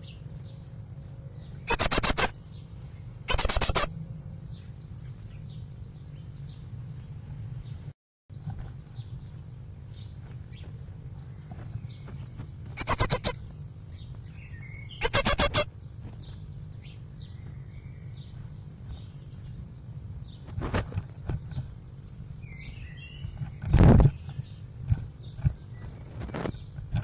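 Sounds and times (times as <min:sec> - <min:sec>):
steady low hum: 0:00.0 - 0:27.0
faint bird calls: 0:01.4 - 0:02.4, 0:03.3 - 0:03.9, 0:12.7 - 0:13.5, 0:14.5 - 0:15.7
bird scuffling: 0:10.0 - 0:13.3, 0:20.3 - 0:21.7, 0:22.6 - 0:27.0.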